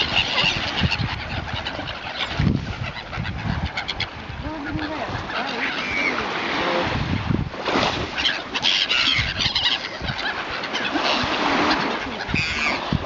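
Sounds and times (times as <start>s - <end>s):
wind buffeting microphone: 0.0s - 8.2s, 10.9s - 13.0s
gulls calling: 0.0s - 13.0s
small waves washing: 0.0s - 13.0s.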